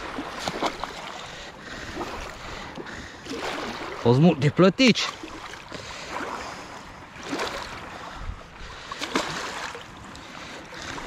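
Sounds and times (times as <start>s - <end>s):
loud splashes: 0.0s - 1.3s, 3.2s - 4.1s, 9.0s - 9.8s
water sloshing and splashing: 0.0s - 11.0s.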